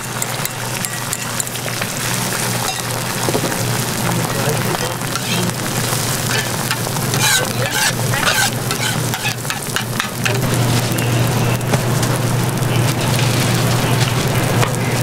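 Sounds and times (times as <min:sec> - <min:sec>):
patties sizzling on a griddle: 0:00.0 - 0:15.0
metal spatula scraping griddle: 0:05.0 - 0:10.4.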